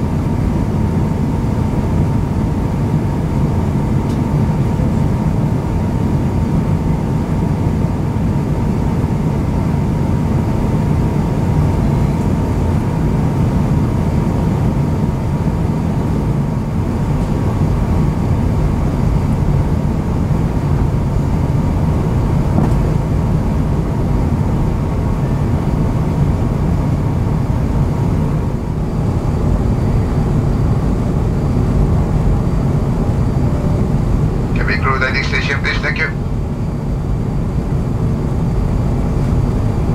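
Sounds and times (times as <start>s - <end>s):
rumble of engines and airflow: 0.0s - 39.9s.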